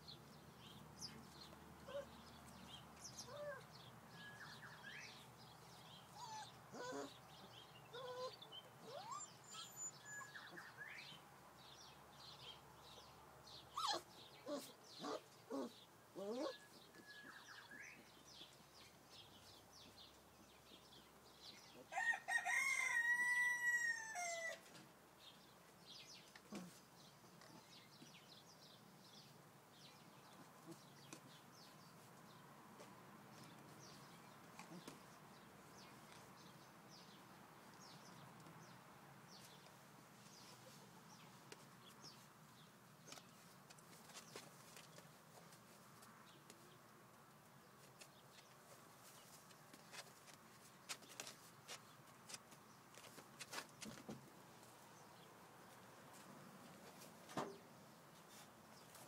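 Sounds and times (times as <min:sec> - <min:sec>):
rooster crowing: 0:21.9 - 0:24.6.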